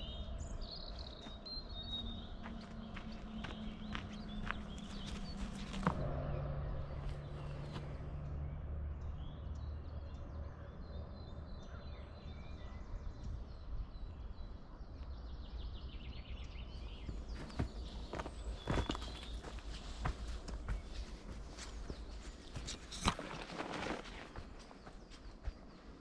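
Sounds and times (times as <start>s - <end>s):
birds chirping: 0.0s - 26.0s
footsteps on dirt path: 0.9s - 6.3s, 6.9s - 8.0s, 16.8s - 26.0s.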